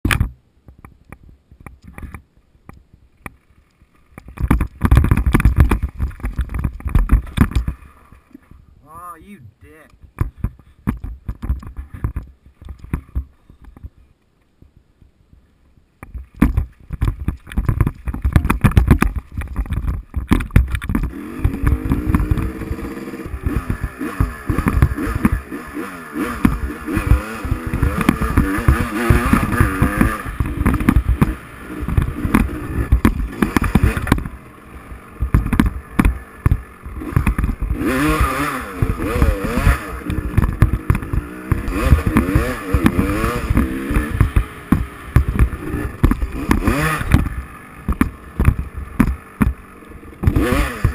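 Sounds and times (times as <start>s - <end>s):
dirt bike engine revving: 20.9s - 50.9s.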